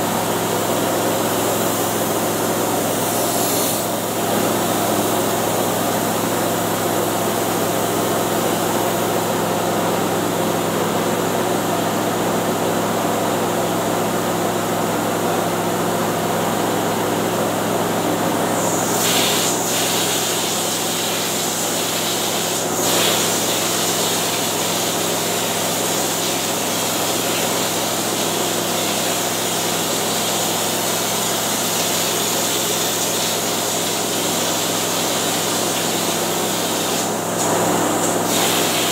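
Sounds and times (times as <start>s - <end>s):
air compressor running: 0.0s - 38.9s
spray gun hissing: 18.5s - 38.9s.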